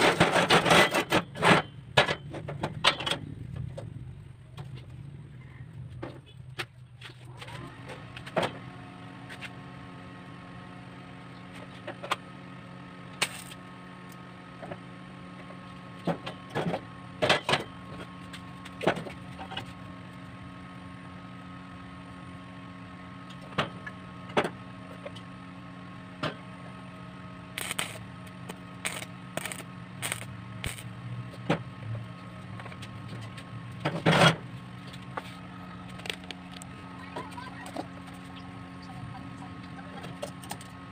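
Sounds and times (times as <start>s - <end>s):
steady hum with held tones: 8.8s - 40.9s.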